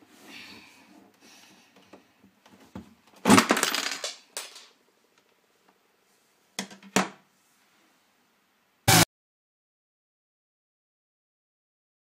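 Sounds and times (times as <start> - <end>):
plastic toy bricks clattering: 3.3 - 4.8
brief loud burst: 8.9 - 9.1.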